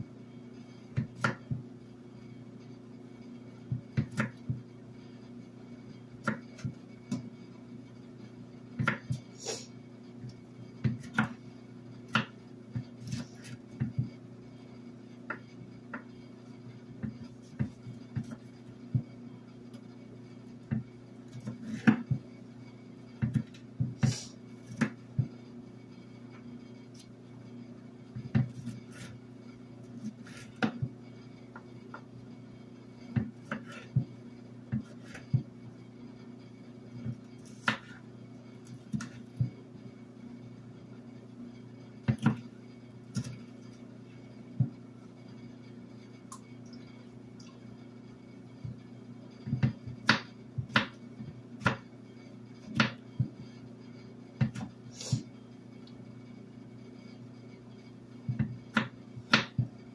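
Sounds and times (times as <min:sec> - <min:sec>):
knife chopping on wooden board: 0:01.0 - 0:01.6, 0:03.7 - 0:04.6, 0:08.8 - 0:09.2, 0:10.8 - 0:11.4, 0:12.1 - 0:14.1, 0:17.0 - 0:19.1, 0:20.7 - 0:22.2, 0:23.2 - 0:25.3, 0:30.0 - 0:31.0, 0:33.2 - 0:34.1, 0:34.7 - 0:35.5, 0:37.0 - 0:38.0, 0:38.9 - 0:39.6, 0:42.1 - 0:42.4, 0:49.4 - 0:51.9, 0:52.7 - 0:53.4, 0:54.4 - 0:55.2, 0:58.3 - 0:59.8.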